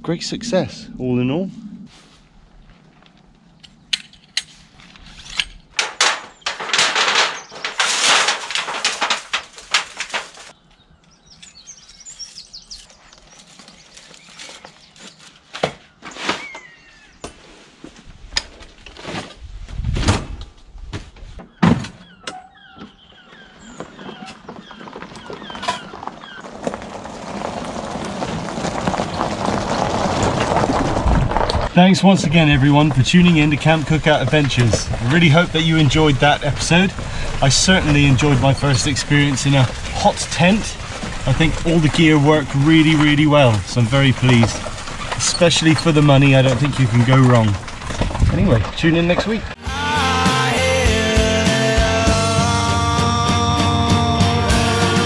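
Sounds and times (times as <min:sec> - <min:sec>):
rustling of camping gear: 0:01.3 - 0:49.6
knocks and clatters: 0:03.9 - 0:10.6, 0:32.5 - 0:49.4.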